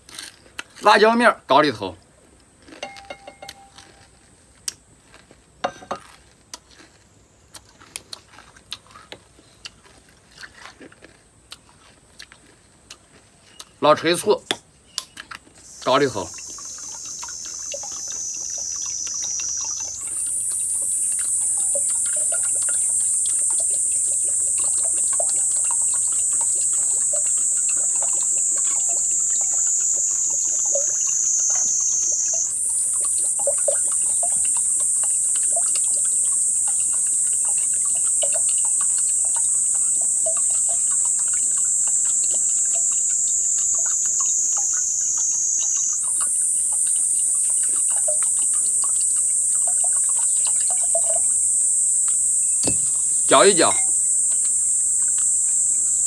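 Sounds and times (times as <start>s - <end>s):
liquid trickling into glass: 2.8s - 4.0s, 15.6s - 55.8s
high-pitched insect drone: 2.8s - 4.1s, 15.6s - 56.0s.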